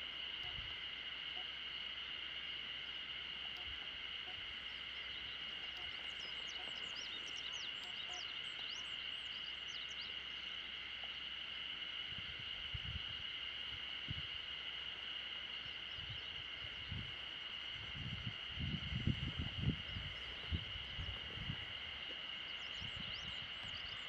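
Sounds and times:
high-pitched animal chorus: 0:03.5 - 0:10.3.

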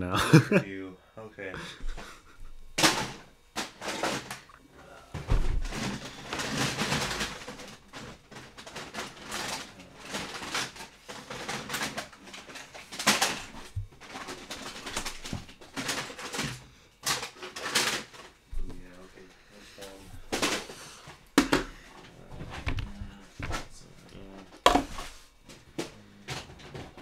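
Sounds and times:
plastic toy blasters clattering: 0:05.6 - 0:18.3.

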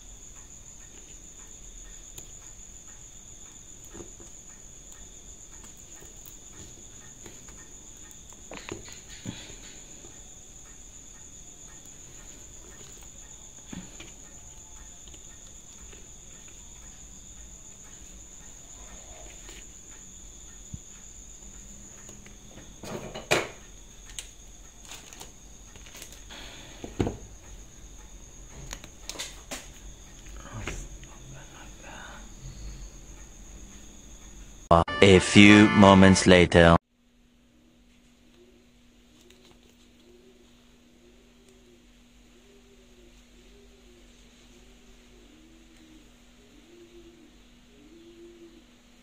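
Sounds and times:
high-pitched whine: 0:34.7 - 0:36.8.

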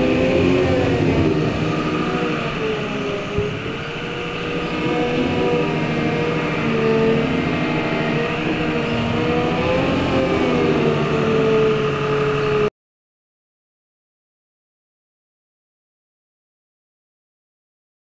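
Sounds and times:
wheel loader diesel engine: 0:00.0 - 0:12.7.

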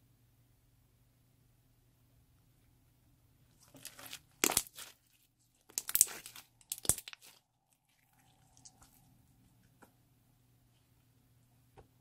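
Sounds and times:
slime crackling and clicking: 0:03.7 - 0:04.9, 0:05.7 - 0:07.4.

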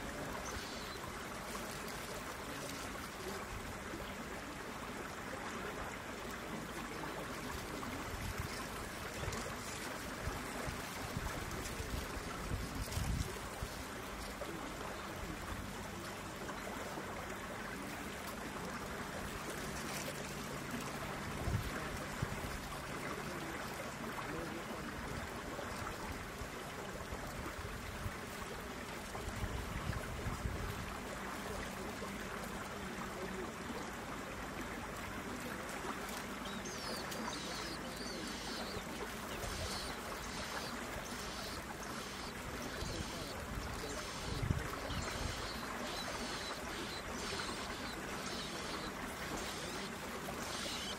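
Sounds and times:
rushing water: 0:00.0 - 0:50.9
high thin bird chirps: 0:39.4 - 0:50.9.

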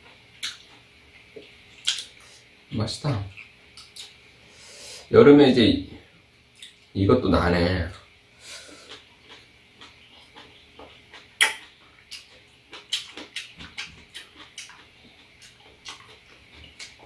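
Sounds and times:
wet chewing: 0:00.4 - 0:02.3, 0:08.7 - 0:17.0
lip smacking: 0:01.4 - 0:02.3, 0:08.8 - 0:17.0
mouth clicks: 0:11.2 - 0:12.3.

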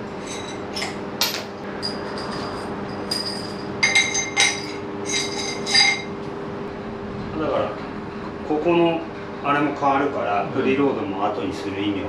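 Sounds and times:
steady low hum: 0:00.0 - 0:12.0
light metallic clinks: 0:00.2 - 0:06.1.

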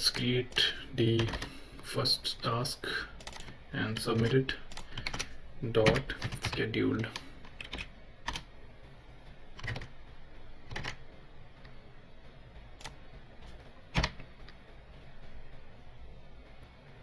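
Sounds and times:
computer keyboard keystrokes: 0:01.2 - 0:01.5, 0:03.2 - 0:08.5, 0:09.6 - 0:09.9, 0:10.7 - 0:11.0, 0:13.9 - 0:14.2.

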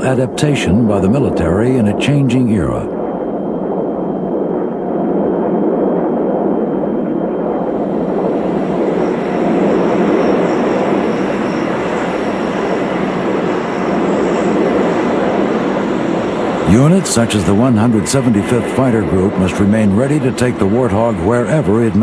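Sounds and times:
faint high whine: 0:00.0 - 0:22.0
jet engine rush: 0:00.0 - 0:22.0.

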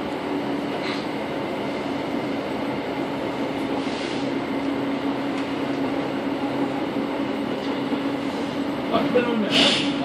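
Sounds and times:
electric train running: 0:00.0 - 0:10.0.

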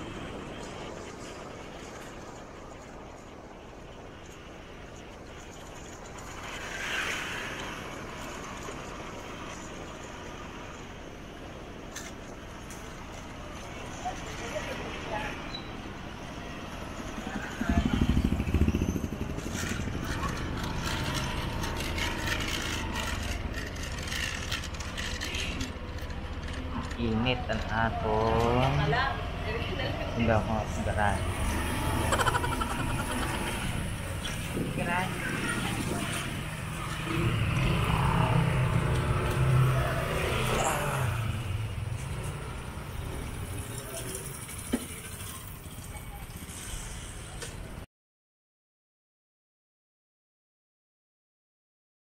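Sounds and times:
road and wind noise: 0:00.0 - 0:47.9
motorcycle engine running: 0:16.9 - 0:27.0.

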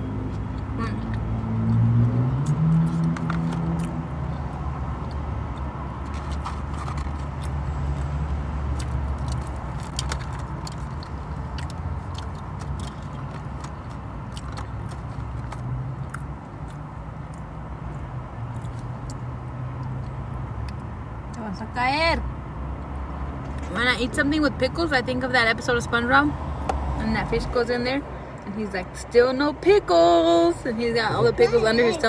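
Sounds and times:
car engine hum: 0:00.0 - 0:32.0
food handled and eaten: 0:00.3 - 0:04.1, 0:05.0 - 0:20.8.

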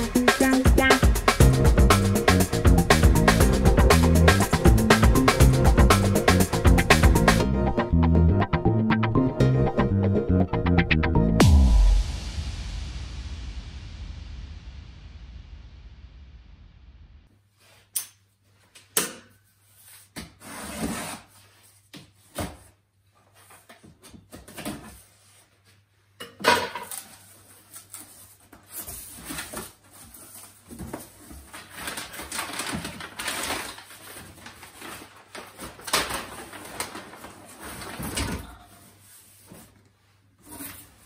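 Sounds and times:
packing paper rustling: 0:26.9 - 0:39.9.

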